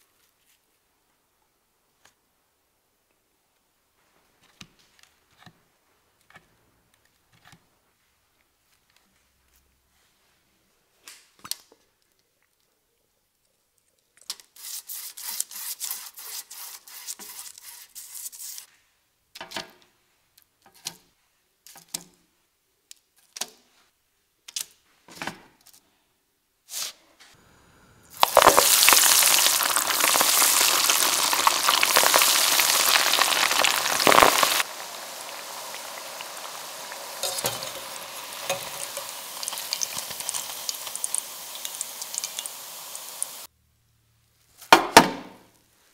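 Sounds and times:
deep frying sizzle: 0:28.1 - 0:43.5.

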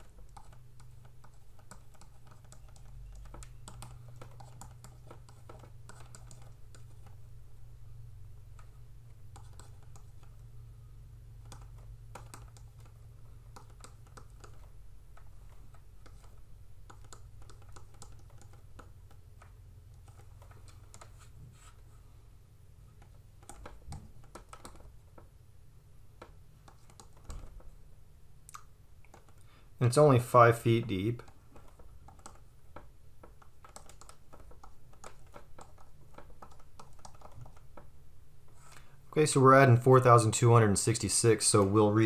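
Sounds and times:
stylus tapping a pen tablet: 0:00.0 - 0:07.2, 0:11.4 - 0:21.2, 0:23.0 - 0:25.3, 0:31.2 - 0:37.9
steady low hum: 0:00.0 - 0:42.0.

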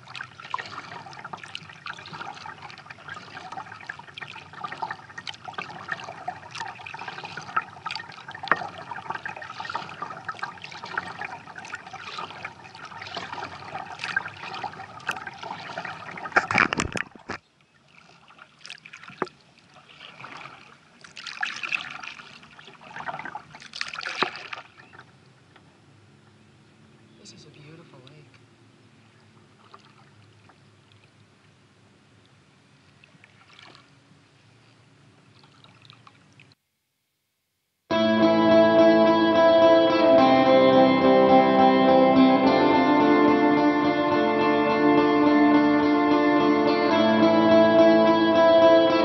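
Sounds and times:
water dripping: 0:00.0 - 0:16.5
kayak paddle splashing water: 0:00.0 - 0:25.2, 0:29.1 - 0:31.2, 0:32.9 - 0:34.0.

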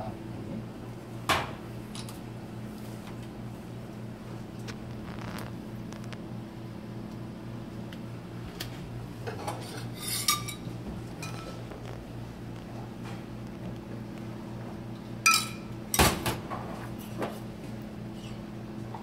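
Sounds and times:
steady low hum: 0:00.0 - 0:19.0
metal spoon clinking saucepan: 0:15.3 - 0:15.6.

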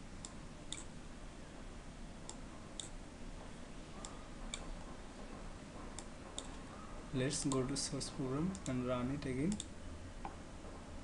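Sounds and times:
faint steady hiss: 0:06.0 - 0:10.5.

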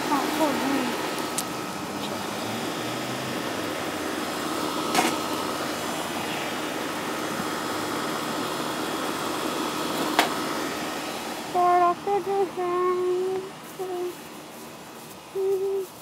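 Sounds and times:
steady rushing hiss: 0:00.0 - 0:16.0
faint hum: 0:03.4 - 0:16.0.

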